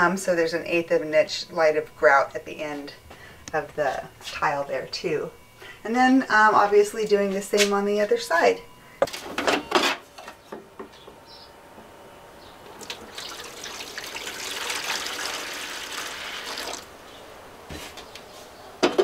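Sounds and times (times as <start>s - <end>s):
water pouring from jug: 12.8s - 16.9s.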